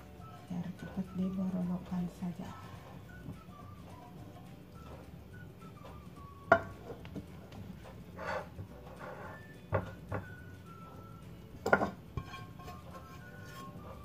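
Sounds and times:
spatula scraping frying pan: 0:00.0 - 0:14.0
spatula clacking against pan: 0:11.6 - 0:14.0.

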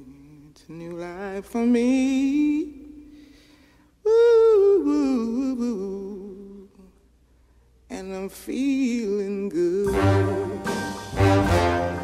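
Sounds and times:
person singing unaccompanied: 0:07.9 - 0:11.4.

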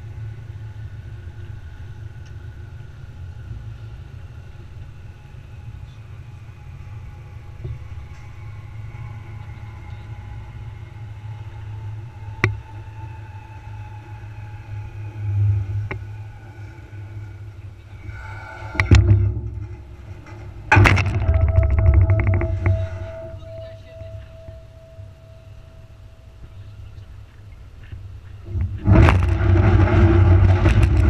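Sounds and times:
tractor rumble: 0:00.0 - 0:31.0
trailer knocking and rattling: 0:06.6 - 0:26.6, 0:27.7 - 0:31.0
loud clatter: 0:18.6 - 0:25.3, 0:28.5 - 0:31.0.

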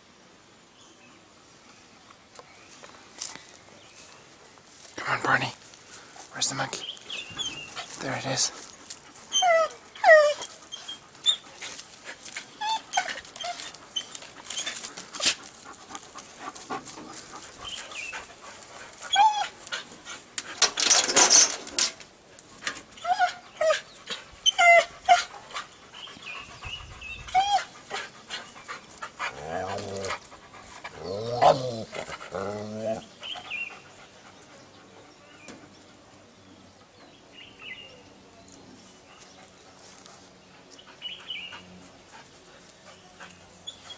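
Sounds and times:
dog yelping and whining: 0:09.3 - 0:11.5, 0:12.6 - 0:14.9, 0:19.1 - 0:19.6, 0:23.0 - 0:23.8, 0:24.4 - 0:25.3, 0:27.2 - 0:28.0, 0:31.0 - 0:33.0.

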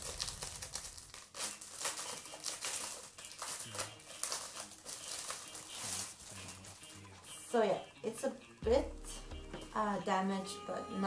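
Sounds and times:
plastic packaging crinkling: 0:00.0 - 0:06.8.

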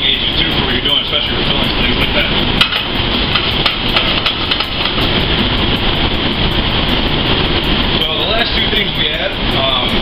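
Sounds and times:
loud steady kitchen roar: 0:00.0 - 0:10.0.

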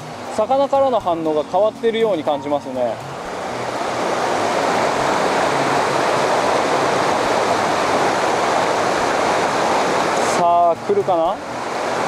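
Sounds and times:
river water rushing over rocks: 0:00.0 - 0:12.0.

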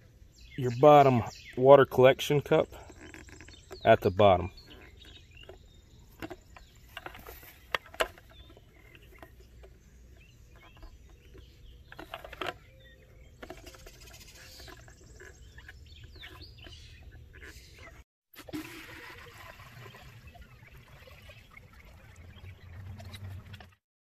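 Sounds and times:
plastic bucket clicks and knocks: 0:04.7 - 0:15.3.

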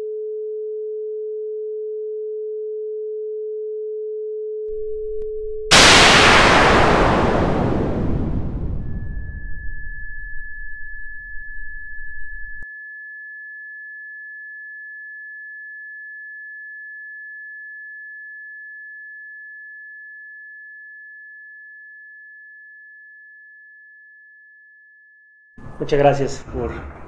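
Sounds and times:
low rough noise: 0:04.7 - 0:12.6, 0:25.6 - 0:27.0
high sine tone: 0:04.7 - 0:20.1.

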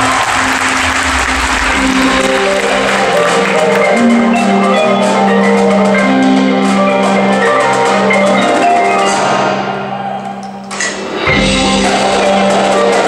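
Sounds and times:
held low note: 0:00.8 - 0:04.7
marimbas playing: 0:00.8 - 0:13.0.

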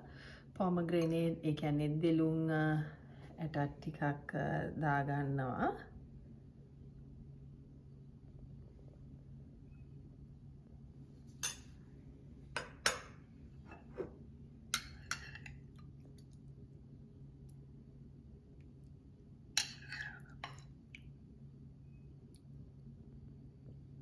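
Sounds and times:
low steady hum: 0:00.0 - 0:24.0
metal spoon clinking on dishes: 0:11.4 - 0:11.8, 0:14.8 - 0:15.6, 0:19.6 - 0:20.6.

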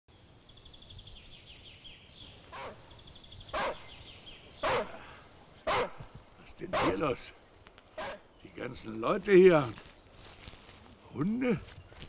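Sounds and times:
songbird trilling: 0:00.6 - 0:06.0
dog barking: 0:04.6 - 0:05.1, 0:05.7 - 0:06.0, 0:06.8 - 0:07.0.

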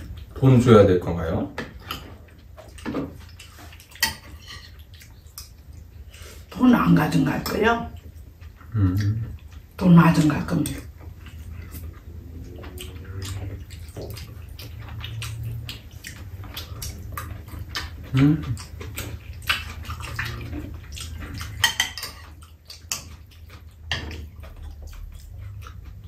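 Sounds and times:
chewing and slurping: 0:01.7 - 0:06.5, 0:07.9 - 0:26.0
person humming: 0:08.7 - 0:09.2.

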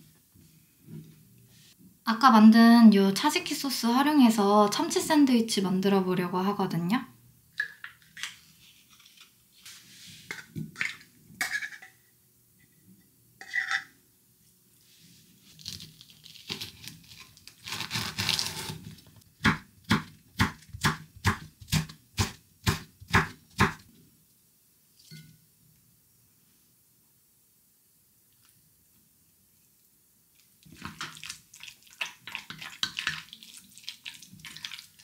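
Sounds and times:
knife chopping on wooden board: 0:19.4 - 0:23.8.

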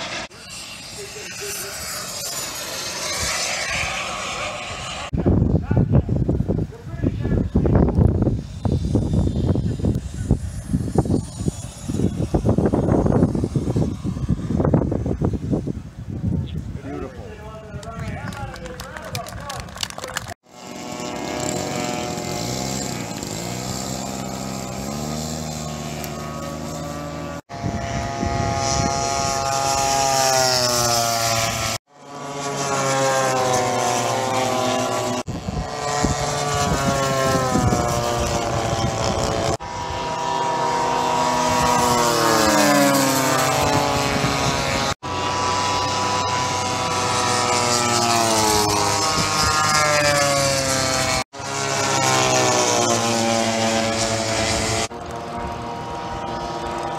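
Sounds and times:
model plane engine and propeller: 0:00.0 - 0:56.9
plane fly-bys: 0:00.0 - 0:56.9.

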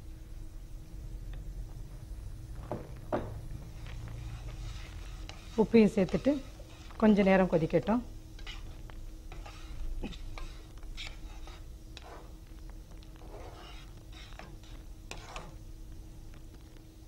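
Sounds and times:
faint hum: 0:00.0 - 0:17.0
spoon scraping a pan: 0:03.7 - 0:07.7, 0:08.3 - 0:15.7.

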